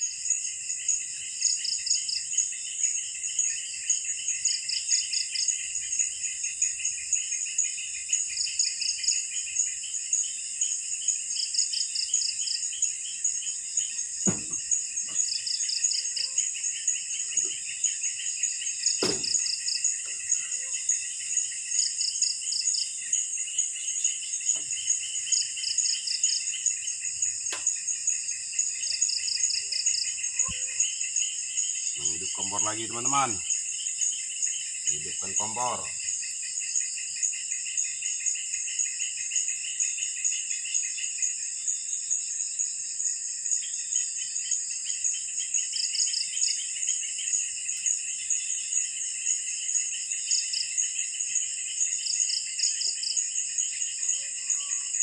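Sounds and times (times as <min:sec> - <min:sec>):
insects buzzing: 0:00.0 - 0:55.0
short pulsed insect trill: 0:00.0 - 0:55.0
sharp knocks: 0:14.2 - 0:15.2, 0:19.0 - 0:19.5.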